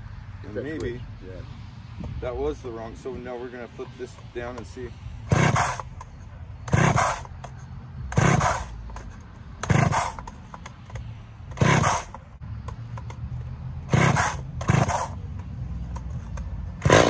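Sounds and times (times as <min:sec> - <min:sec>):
chainsaw engine cranking: 0:05.3 - 0:06.0, 0:06.6 - 0:07.5, 0:08.1 - 0:12.2, 0:13.8 - 0:15.3, 0:15.9 - 0:17.0
chainsaw pull-start rope pulls: 0:05.3 - 0:06.0, 0:06.6 - 0:07.4, 0:08.1 - 0:10.4, 0:11.5 - 0:12.2, 0:13.8 - 0:15.3, 0:16.8 - 0:17.0.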